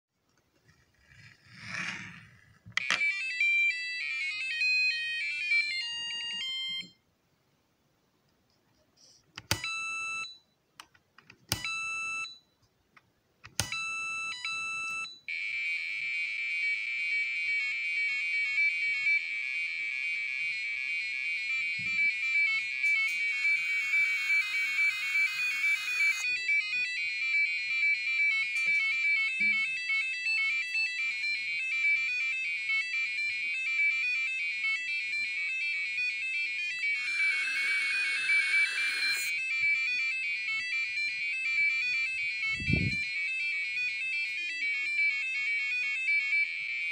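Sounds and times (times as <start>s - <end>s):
piezo buzzer beeping melody: 13.6s - 46.9s.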